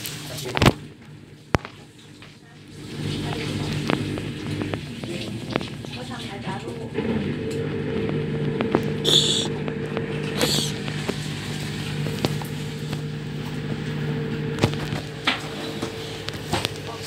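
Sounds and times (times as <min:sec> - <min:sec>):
washing machine motor hum: 0:00.0 - 0:17.0
short hisses: 0:09.0 - 0:09.5, 0:10.4 - 0:10.8.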